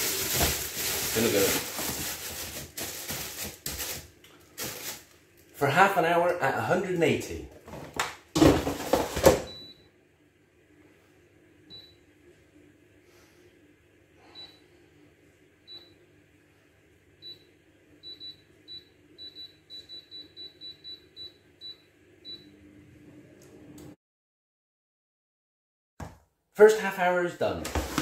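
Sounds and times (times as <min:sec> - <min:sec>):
air fryer fan humming: 0:00.0 - 0:24.0.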